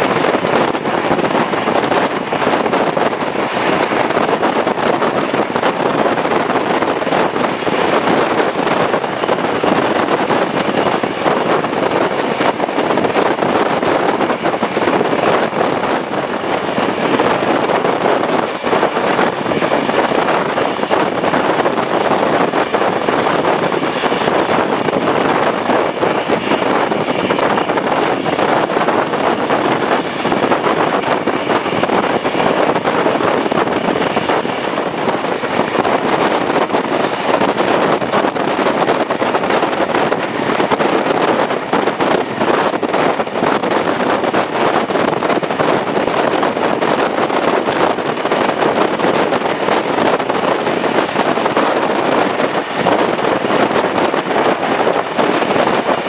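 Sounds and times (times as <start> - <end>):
train wheels on rails: 0.0 - 56.0
wind on microphone: 0.0 - 56.0.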